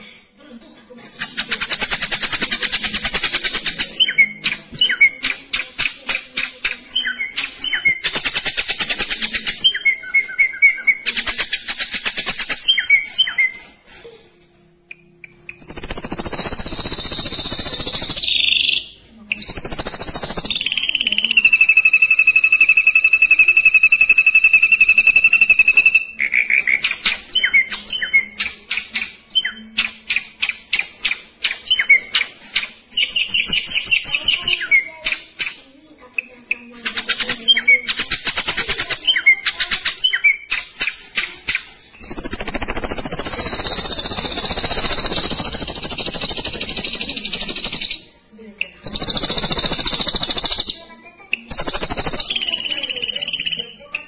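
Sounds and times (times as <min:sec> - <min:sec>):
bird singing: 0:02.4 - 0:05.7, 0:06.6 - 0:12.0, 0:14.9 - 0:32.3, 0:42.0 - 0:54.0.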